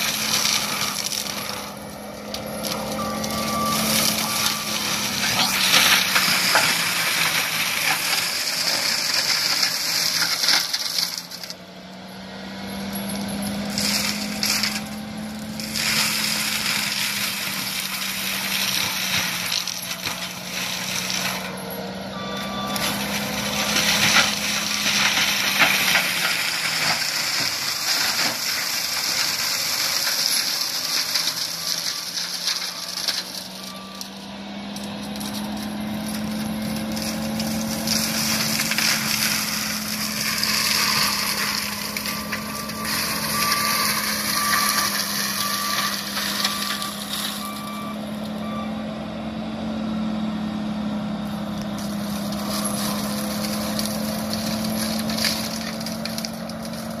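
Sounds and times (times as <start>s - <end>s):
mulcher droning and crackling: 0.0s - 57.0s
backup alarm beeping: 22.1s - 23.0s.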